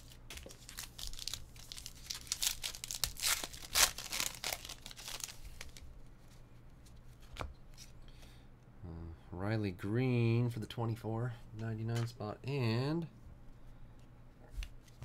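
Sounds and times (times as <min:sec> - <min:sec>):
wrapper tearing and crinkling: 0:00.4 - 0:05.8.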